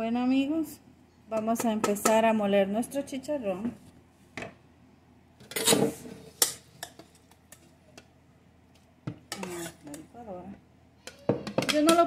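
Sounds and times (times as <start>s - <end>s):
spoon scraping metal pot: 5.4s - 7.1s, 9.3s - 10.0s.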